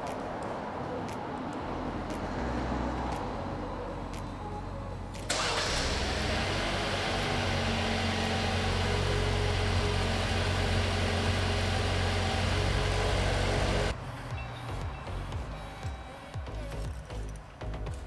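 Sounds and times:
car engine starting and idling: 0:04.5 - 0:14.0.

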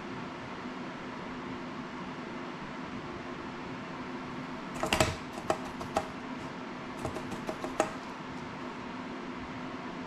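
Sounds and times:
steady low hum: 0:00.0 - 0:10.0
clicks and taps of hand tools: 0:04.8 - 0:06.1, 0:07.0 - 0:08.0.

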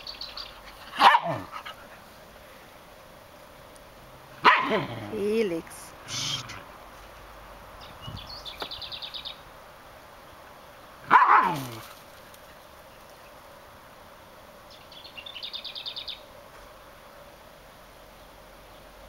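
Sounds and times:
dog barking: 0:01.0 - 0:01.5, 0:04.4 - 0:04.9, 0:11.1 - 0:11.7.

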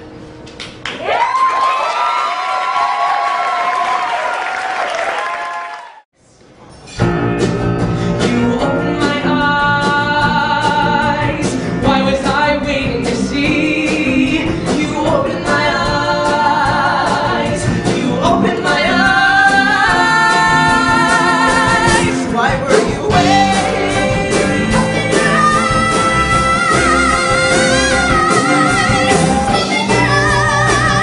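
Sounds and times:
drums: 0:06.7 - 0:31.0
men singing: 0:08.2 - 0:28.6.

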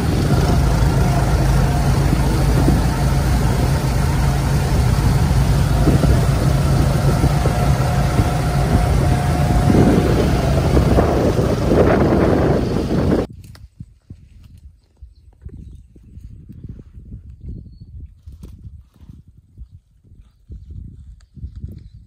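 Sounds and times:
engine running: 0:00.0 - 0:13.3.

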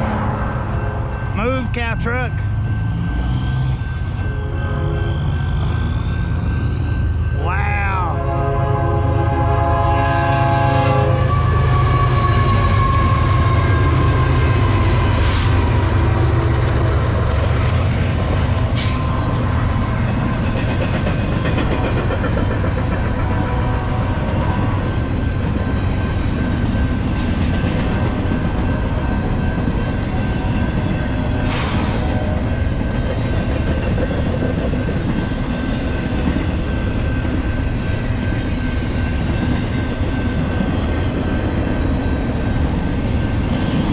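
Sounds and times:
train rumbling and rattling: 0:00.0 - 0:43.9
train horn blast: 0:04.3 - 0:05.2, 0:08.1 - 0:13.7, 0:23.2 - 0:24.8.

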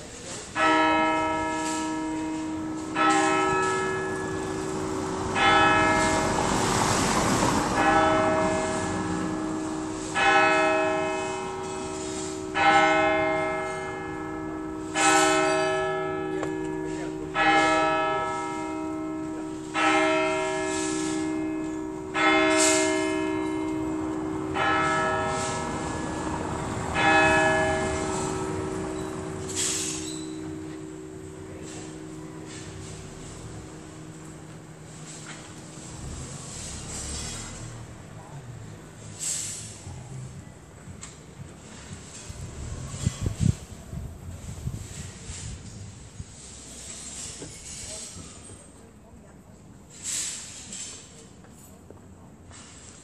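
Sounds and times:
church bell ringing: 0:00.4 - 0:37.3.

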